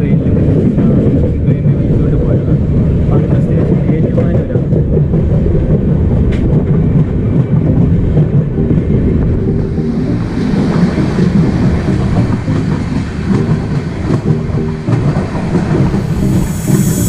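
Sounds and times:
train coach rumbling on rails: 0.0s - 17.0s
rushing hiss: 15.9s - 17.0s.

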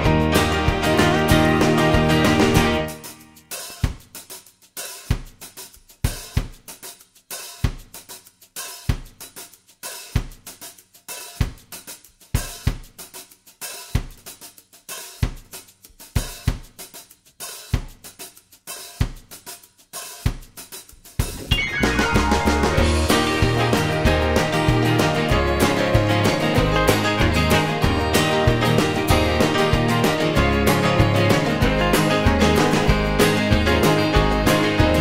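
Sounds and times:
cymbal and hi-hat hits: 2.9s - 21.6s.

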